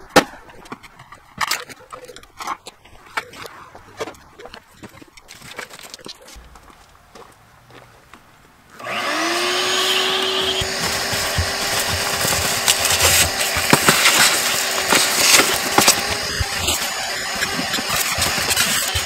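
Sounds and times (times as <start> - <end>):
grit crackling in vacuum nozzle: 8.8 - 19.0
vacuum cleaner motor whine: 8.8 - 19.0.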